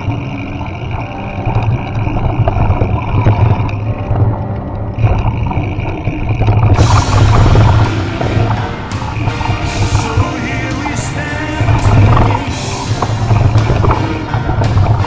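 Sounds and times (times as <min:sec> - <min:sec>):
off-road vehicle engine running: 0:00.0 - 0:15.0
hissing rush: 0:05.0 - 0:15.0.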